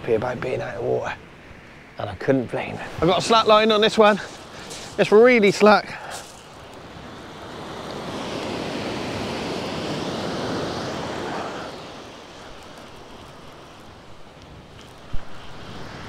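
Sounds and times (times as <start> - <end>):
surf breaking on shingle: 3.1 - 6.9.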